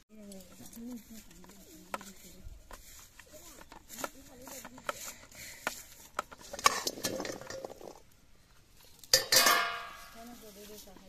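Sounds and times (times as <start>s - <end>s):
metal cooking pan clanging: 9.1s - 10.2s
metal dishes and utensils clinking: 9.1s - 10.2s.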